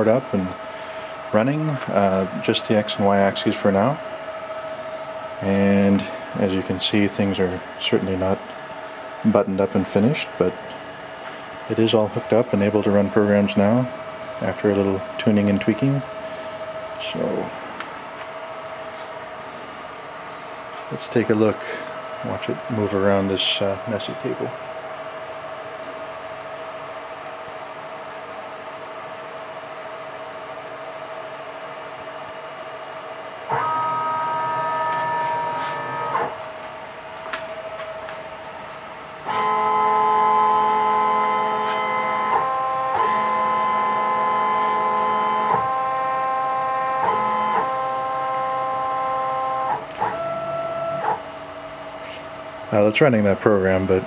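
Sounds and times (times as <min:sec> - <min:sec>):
machine steady hum: 0:00.0 - 0:54.0
stepper motors whining: 0:33.5 - 0:36.4, 0:39.3 - 0:51.2.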